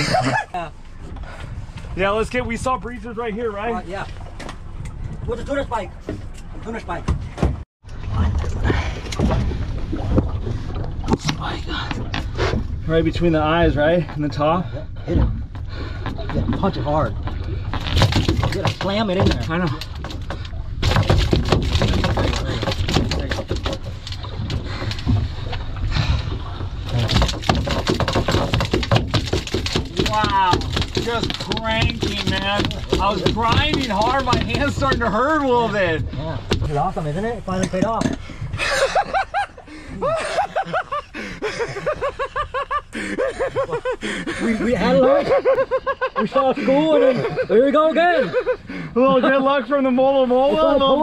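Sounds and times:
men laughing heartily: 0.0s - 0.8s, 38.5s - 49.3s
steady low rumble: 7.8s - 44.8s.

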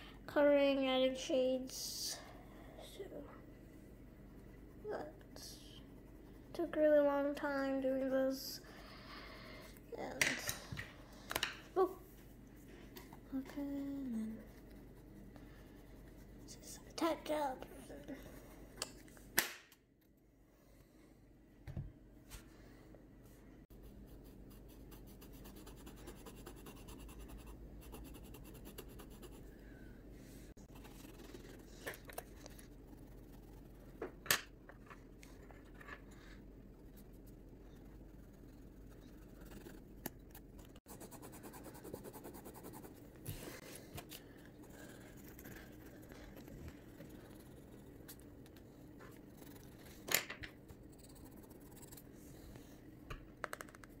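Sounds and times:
pencil scratching on paper: 23.7s - 29.5s, 30.6s - 34.0s, 36.3s - 39.9s, 40.8s - 43.6s, 44.6s - 48.3s, 49.1s - 50.0s, 50.7s - 52.1s.

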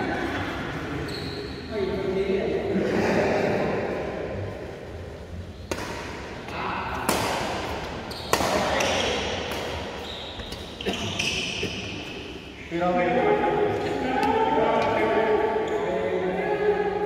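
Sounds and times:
rackets hitting shuttlecock: 5.6s - 11.9s.

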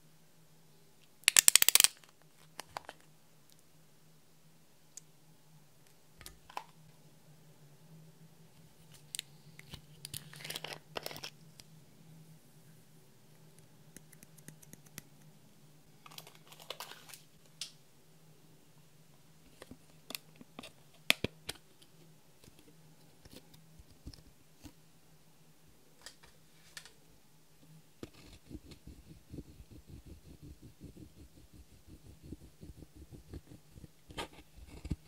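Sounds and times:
tool scratching crumbling eyeshadow: 28.0s - 35.0s.

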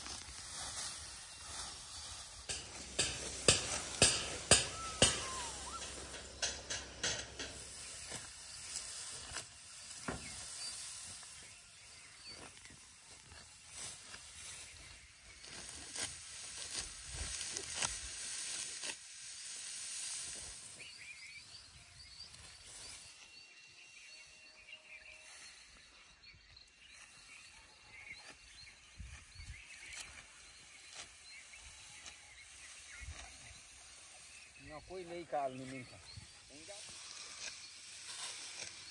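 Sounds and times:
dry stalks rustling: 0.0s - 21.1s, 35.2s - 38.9s.

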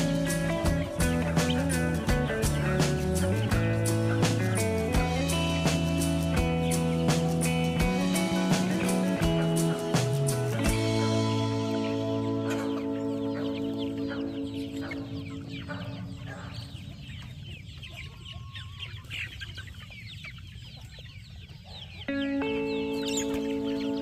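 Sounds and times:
background music: 0.0s - 16.5s, 22.1s - 24.0s
chickens clucking: 0.0s - 24.0s.

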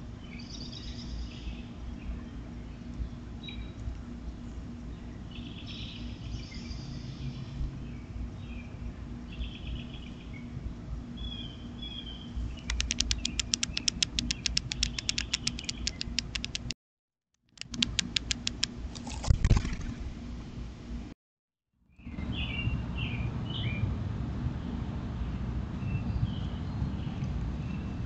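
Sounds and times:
steady low hum: 0.0s - 16.8s, 17.5s - 21.2s
birds chirping: 0.2s - 16.7s
fast sharp clicks: 12.6s - 16.8s, 17.5s - 19.8s.

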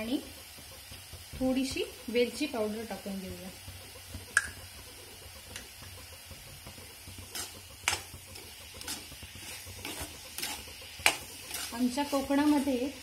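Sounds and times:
utensil scraping a pan: 6.8s - 13.0s.

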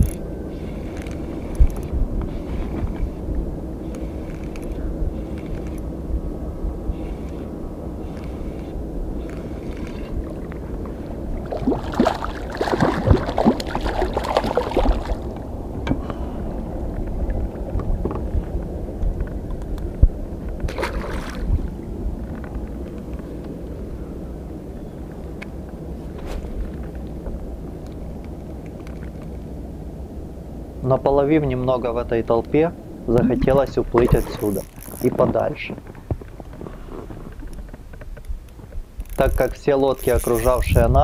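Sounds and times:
low rumble of wind and water: 0.0s - 41.0s
fish splashing at the surface: 11.5s - 15.3s, 20.7s - 21.6s.

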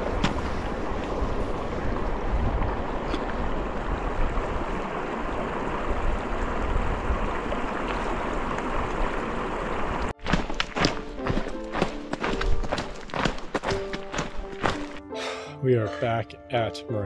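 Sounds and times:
music with sharp tapping beats: 10.2s - 15.1s.

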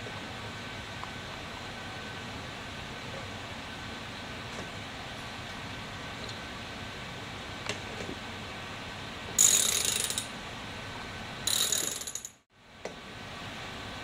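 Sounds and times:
ratchet wrench clicking: 9.4s - 10.3s, 11.5s - 12.4s.

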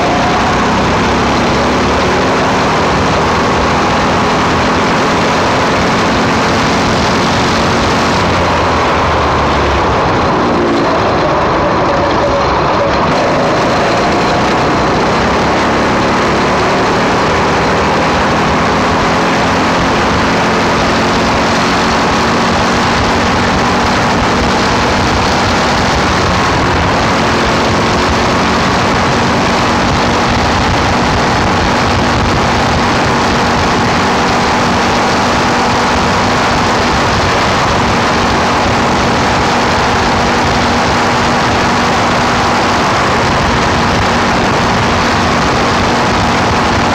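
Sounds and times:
small engine running steadily: 0.0s - 46.9s.

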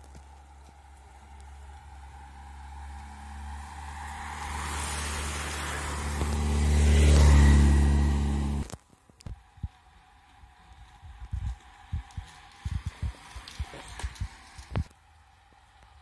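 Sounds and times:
bicycles rushing past: 0.2s - 8.7s, 9.4s - 16.0s
motorcycle engine passing: 2.1s - 8.7s.

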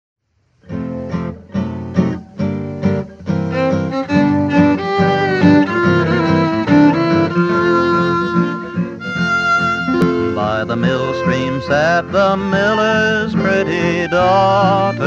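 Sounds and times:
acoustic guitar chords and strumming: 0.6s - 15.0s
fiddle melody: 1.1s - 15.0s.

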